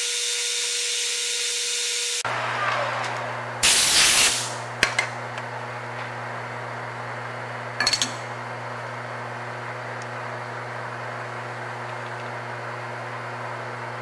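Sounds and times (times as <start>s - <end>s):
metal lathe humming: 2.2s - 3.7s.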